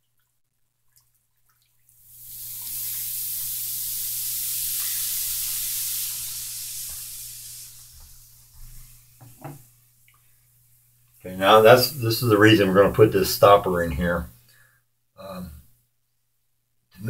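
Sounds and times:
baking soda fizzing in water: 0.8s - 13.8s.

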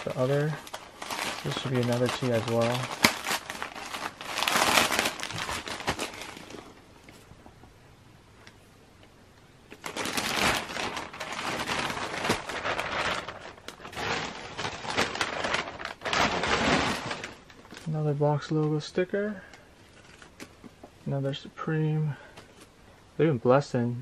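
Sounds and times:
plastic mailer bag crinkling: 0.0s - 6.8s, 9.7s - 20.6s.

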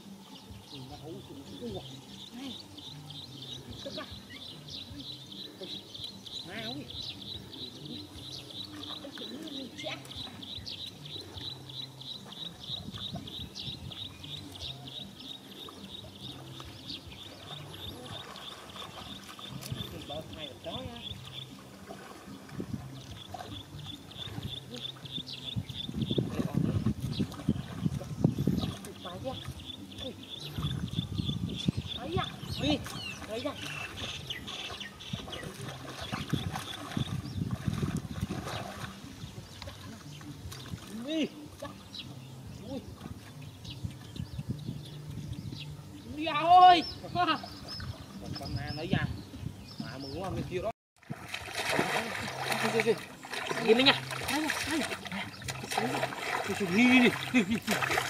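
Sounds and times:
hands squelching in mud: 51.1s - 58.0s.

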